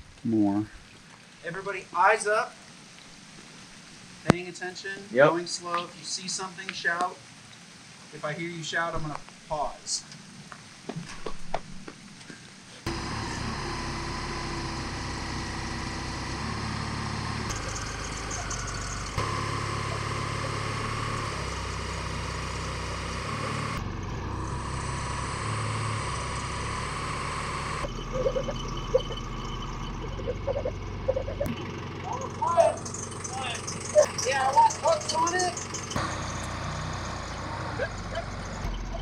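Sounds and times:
telehandler engine under load: 12.8 - 39.0.

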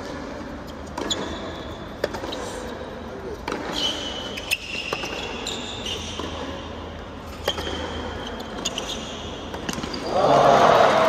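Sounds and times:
racquet striking tennis ball: 0.0 - 2.4, 3.4 - 8.7
tennis ball bouncing: 0.0 - 2.4, 3.4 - 10.1
shoes squeaking on court: 0.0 - 10.2.

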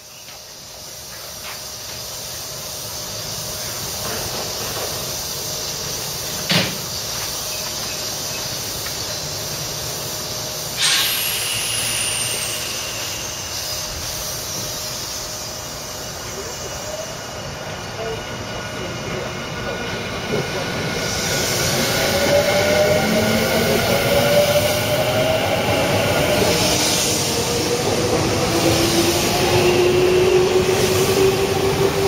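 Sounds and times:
electric train high whine: 0.0 - 32.0
train equipment running: 0.1 - 32.0
air brake hiss: 10.0 - 17.1.

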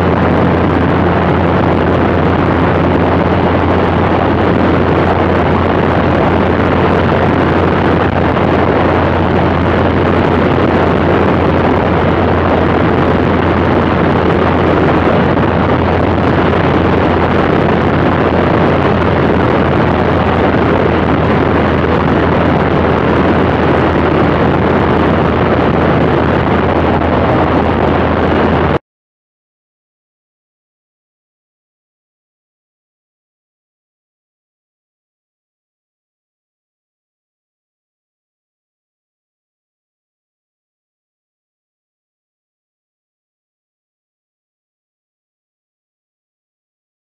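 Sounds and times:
airplane engine droning: 0.0 - 28.8
wind rushing over microphone: 0.0 - 28.8.

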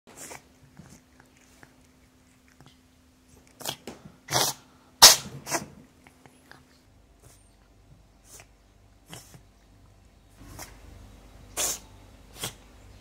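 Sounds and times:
cat sneezing: 3.6 - 5.8, 8.2 - 9.4, 11.5 - 12.6.

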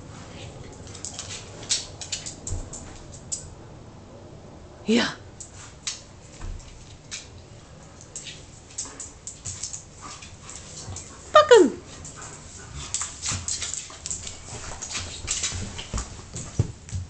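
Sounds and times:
dog claws scuffling on wood: 12.0 - 17.0.

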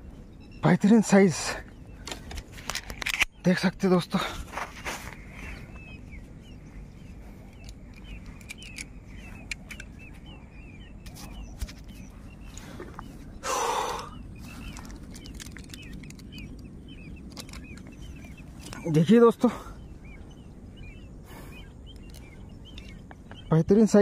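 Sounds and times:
small birds chirping: 0.0 - 24.0
low steady rumble: 4.4 - 23.5.

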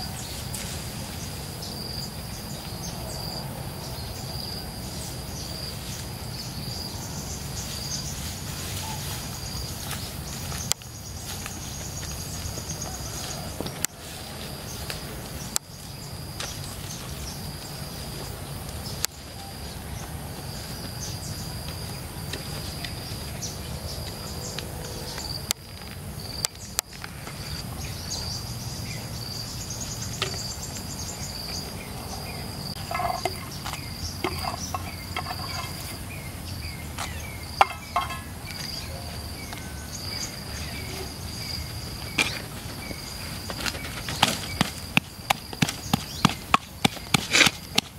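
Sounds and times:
insects chirring: 0.0 - 47.9
clay pots knocking: 32.8 - 35.9, 37.6 - 38.5.

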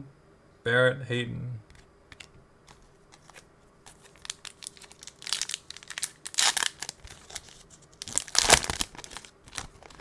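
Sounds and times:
foil wrapper crinkling and tearing: 2.7 - 10.0.

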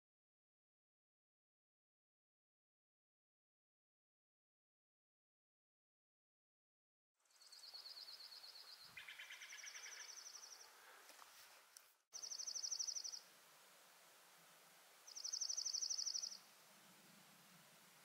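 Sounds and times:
faint outdoor hiss: 7.2 - 18.0
songbirds trilling: 7.4 - 11.0, 12.2 - 13.2, 15.0 - 17.0.

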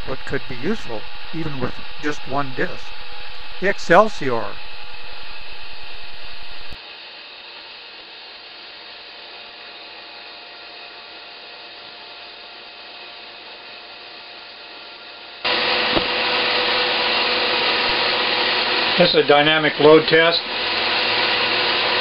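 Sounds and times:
steady tone: 0.0 - 6.8
fan motor whirring hum: 0.0 - 22.0.

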